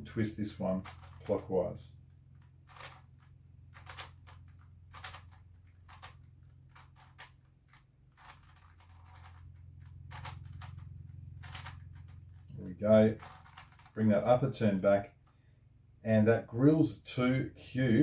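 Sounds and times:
puzzle cube clicking: 0:00.8 - 0:01.5, 0:02.3 - 0:10.8, 0:11.4 - 0:12.4, 0:13.1 - 0:14.1.

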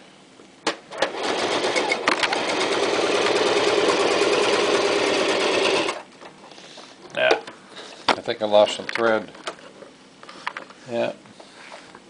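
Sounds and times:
sewing machine stitching leather: 0:00.9 - 0:06.1.

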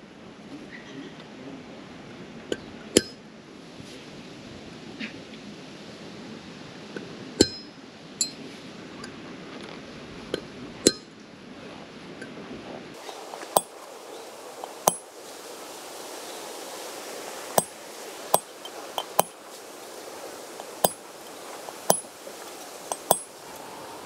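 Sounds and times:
hammer striking metal: 0:03.0 - 0:03.2, 0:07.4 - 0:08.4, 0:10.9 - 0:11.1, 0:14.8 - 0:15.0, 0:21.9 - 0:22.1, 0:22.9 - 0:23.3.

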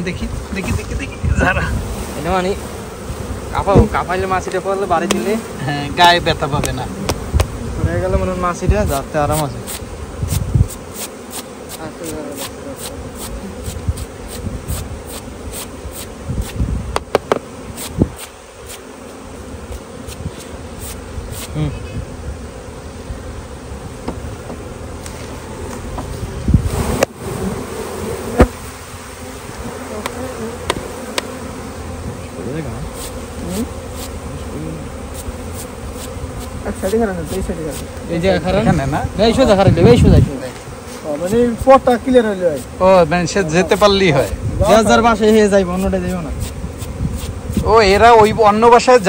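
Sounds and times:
bees buzzing: 0:00.0 - 0:49.0
hive frames clicking and knocking: 0:03.7 - 0:05.4, 0:06.6 - 0:07.6, 0:08.7 - 0:21.5, 0:23.9 - 0:27.3, 0:28.3 - 0:28.6, 0:29.5 - 0:31.6, 0:35.0 - 0:38.1.

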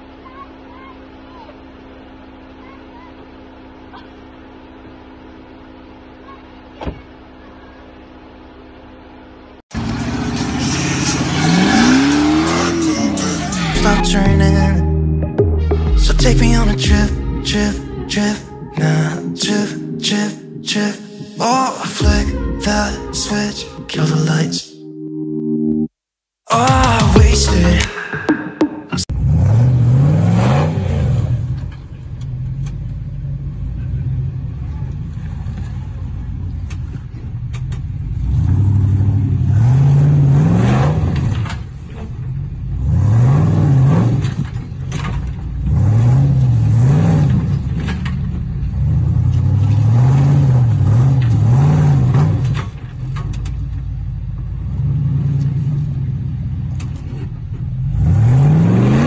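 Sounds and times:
engine revving: 0:09.7 - 0:15.0, 0:29.0 - 0:35.8, 0:38.0 - 0:53.4, 0:54.6 - 0:59.0.

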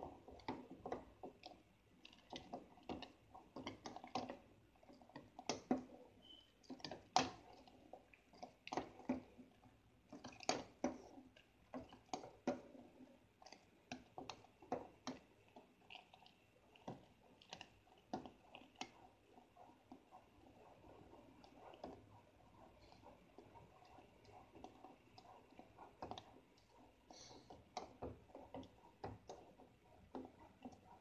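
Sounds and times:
liquid swishing: 0:00.0 - 0:31.0.

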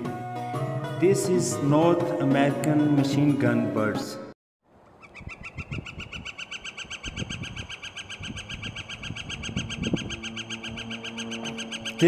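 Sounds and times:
bird calling rapid high notes: 0:05.0 - 0:12.0.

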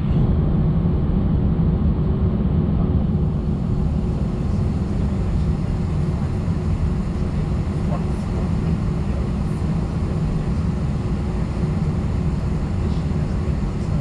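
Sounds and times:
jet engine cabin rumble: 0:00.0 - 0:14.0.

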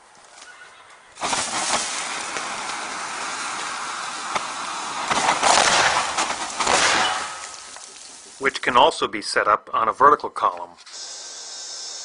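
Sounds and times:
thermite burning hiss: 0:01.2 - 0:08.6.

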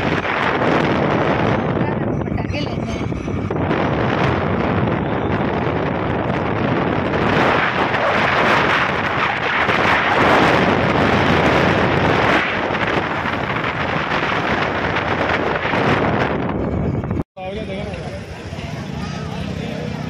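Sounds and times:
wind rushing over microphone: 0:00.0 - 0:17.2
road noise: 0:00.0 - 0:20.0.

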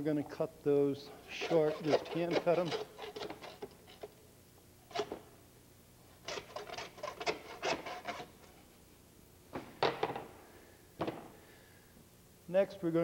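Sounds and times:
knife scraping on cutting board: 0:01.1 - 0:04.2, 0:06.2 - 0:08.5.

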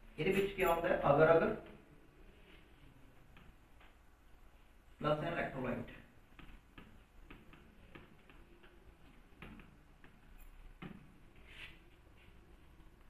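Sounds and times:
stylus tapping on a touchscreen: 0:03.3 - 0:04.0, 0:06.2 - 0:11.2.

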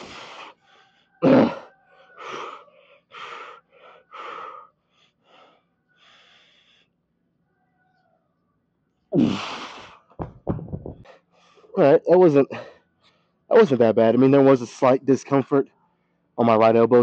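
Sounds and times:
man breathing hard: 0:00.0 - 0:07.0, 0:09.2 - 0:10.1.

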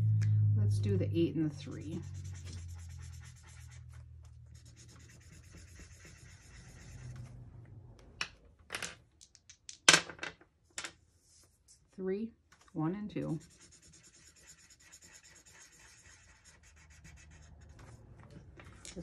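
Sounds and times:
marker pen scribbling on paper: 0:01.9 - 0:07.2, 0:13.2 - 0:18.0
dice rolling on table: 0:08.2 - 0:11.0.

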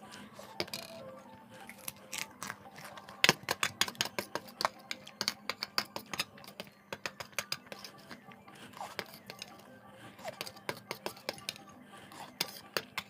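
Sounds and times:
cracker crunching: 0:01.6 - 0:03.9.

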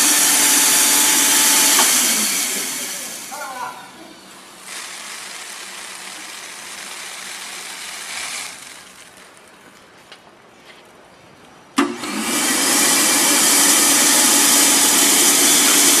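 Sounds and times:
vacuum motor running: 0:00.0 - 0:09.3, 0:11.8 - 0:16.0
seed pouring into box: 0:04.6 - 0:09.7.

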